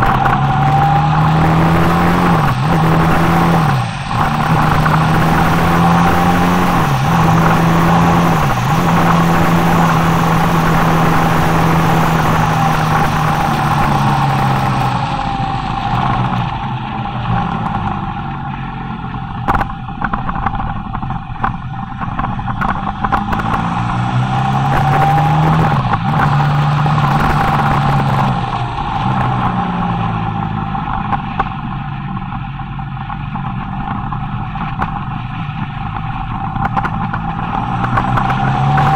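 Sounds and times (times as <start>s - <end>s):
wind rush over microphone: 0.0s - 18.3s, 19.2s - 31.9s
motorcycle engine running: 0.0s - 38.9s.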